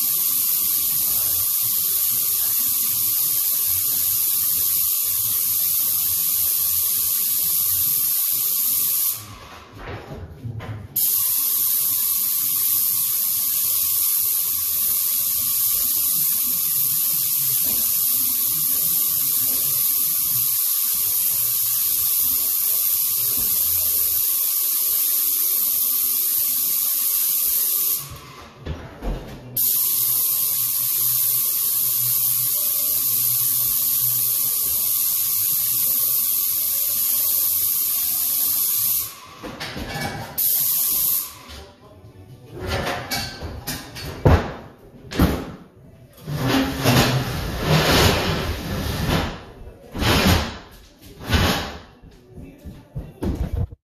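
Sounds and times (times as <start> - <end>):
paint spray gun hissing: 0.0 - 9.3, 11.0 - 28.1, 29.6 - 39.2, 40.4 - 41.4.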